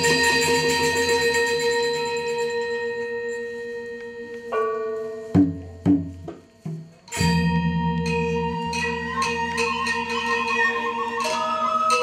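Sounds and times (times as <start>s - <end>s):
gamelan dance music: 0.0s - 12.0s
metallophones ringing: 0.0s - 12.0s.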